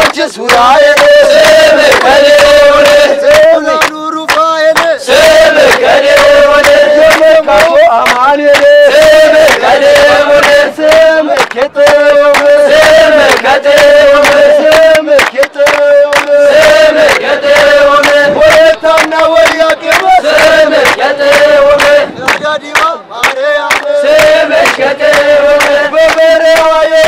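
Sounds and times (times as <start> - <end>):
men chanting a hymn in unison: 0.0 - 27.0
rhythmic handclaps: 0.0 - 27.0.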